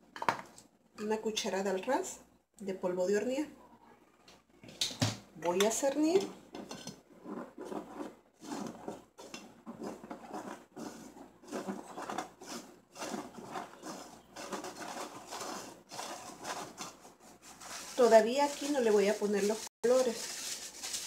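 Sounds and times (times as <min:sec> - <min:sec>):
flour sifting through strainer: 0:07.2 - 0:21.0.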